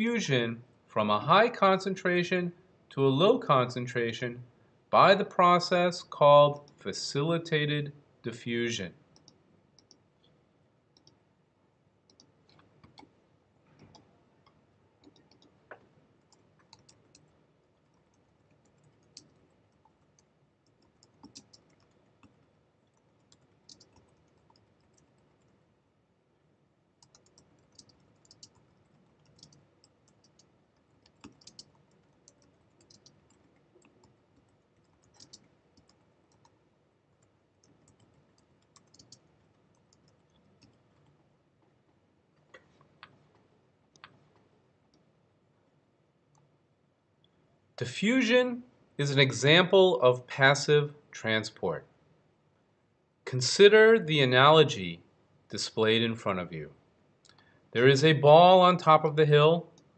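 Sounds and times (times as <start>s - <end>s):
faint keyboard typing: 5.2s - 7.3s, 8.7s - 11.4s, 12.0s - 47.6s.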